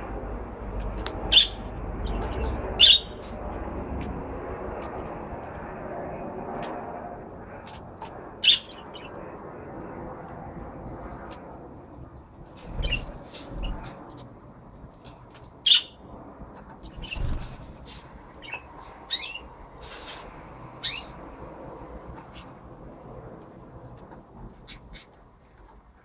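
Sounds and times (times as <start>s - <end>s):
budgerigars chirping and squawking: 1.3s - 3.2s, 12.5s - 13.9s, 15.7s - 16.0s, 16.8s - 17.6s, 18.4s - 21.2s, 24.6s - 25.2s.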